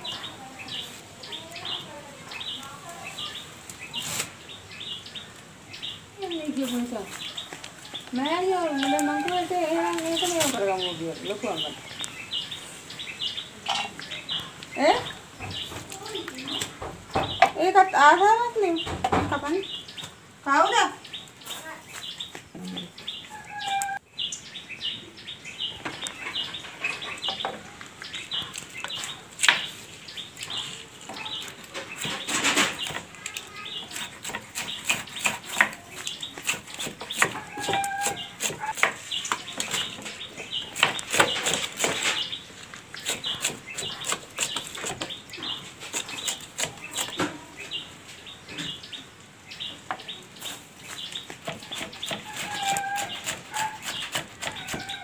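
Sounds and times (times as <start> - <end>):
knife chopping on wooden board: 33.8 - 39.0.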